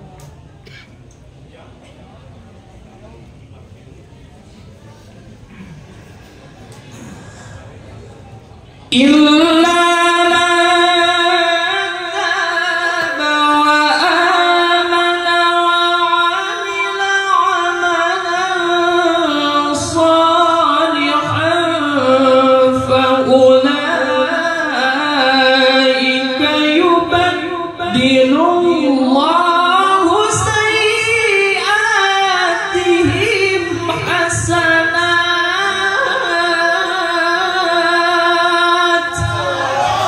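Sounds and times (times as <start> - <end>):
man reciting melodically: 38.6 - 40.0.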